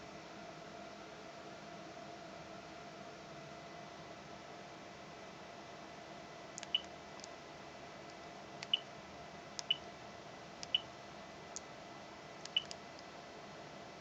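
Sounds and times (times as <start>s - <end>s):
high key beeps: 10.6s - 10.8s, 12.5s - 12.7s.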